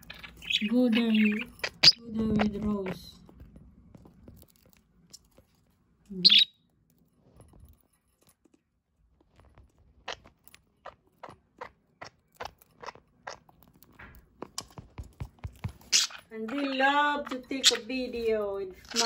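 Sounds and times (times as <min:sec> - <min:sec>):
bird chirp: 0:00.0 - 0:03.1, 0:06.1 - 0:06.6, 0:15.7 - 0:19.0.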